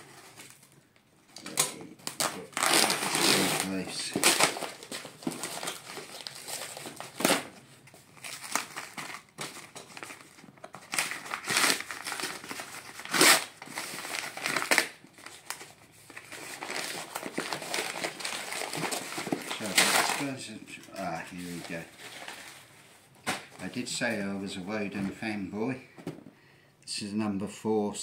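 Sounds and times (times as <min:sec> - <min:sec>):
tape ripping off cardboard: 0:01.4 - 0:07.6, 0:08.3 - 0:15.6
paper wrapping crinkling: 0:01.4 - 0:25.2.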